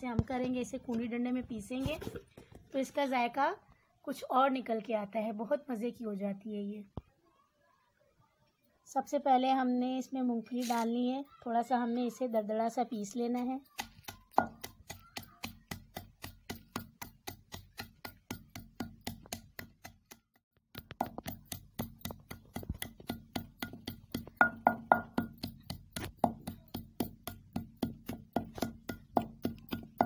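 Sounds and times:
pestle pounding in mortar: 13.8 - 30.0.

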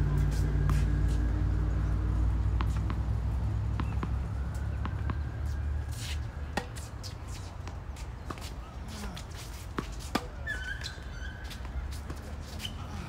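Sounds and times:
tennis ball bouncing: 2.4 - 12.8
racket hitting ball: 3.7 - 4.2, 5.9 - 8.5, 9.1 - 10.4.

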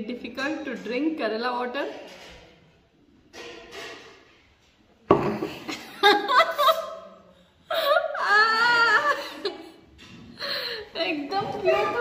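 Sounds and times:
laughter: 5.5 - 9.9.

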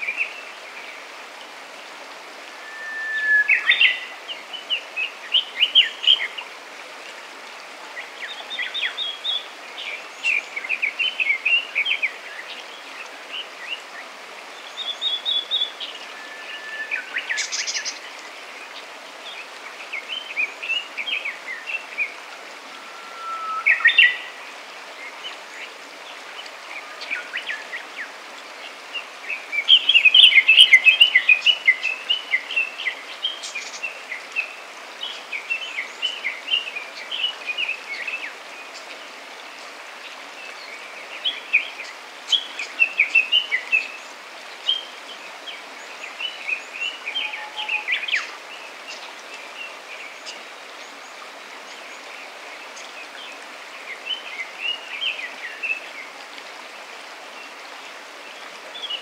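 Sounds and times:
stream water rushing: 0.0 - 59.0
songbirds twittering: 8.0 - 39.1.

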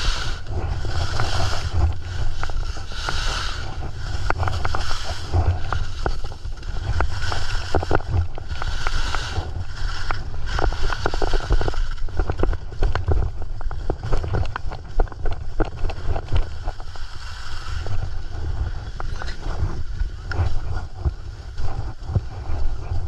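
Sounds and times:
gear clicking and knocking: 0.0 - 17.0
skis carving on snow: 0.0 - 23.0
wind buffeting microphone: 0.0 - 23.0.

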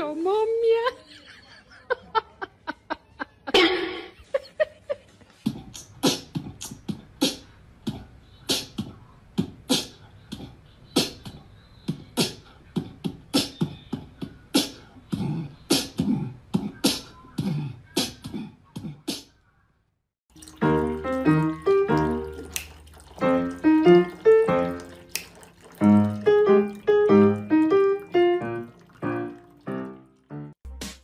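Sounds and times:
beatbox rhythmic beat: 5.4 - 19.3.

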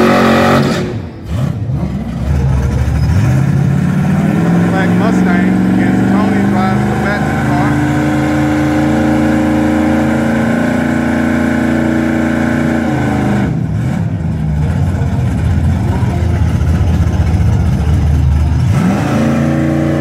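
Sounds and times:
car engines revving and idling: 0.0 - 20.0.

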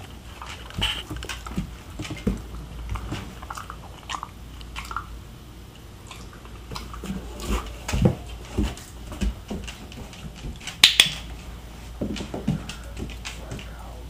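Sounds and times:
puppy chewing and biting: 0.0 - 13.8.

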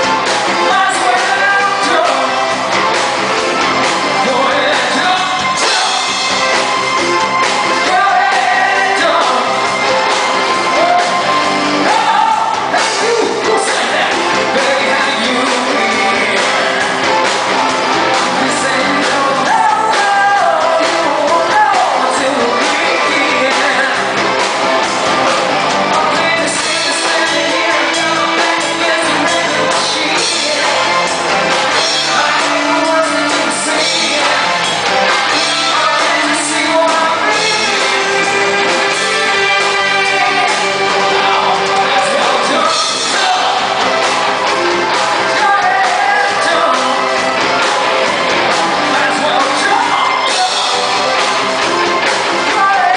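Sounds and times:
bass guitar: 0.0 - 52.9
drums: 0.0 - 52.9
electric guitar: 0.0 - 52.9
person singing into microphone: 0.5 - 2.6, 4.1 - 6.3, 7.7 - 17.2, 18.1 - 24.4, 25.0 - 51.3, 52.0 - 52.9.

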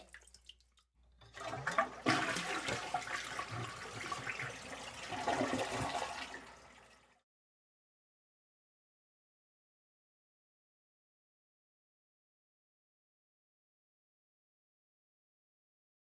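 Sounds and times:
toilet flushing: 1.1 - 7.2.

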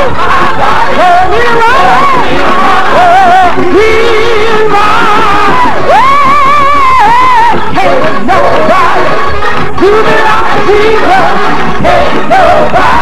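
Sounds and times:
music and voices beneath: 0.0 - 13.0
woman singing gospel: 0.0 - 13.0.

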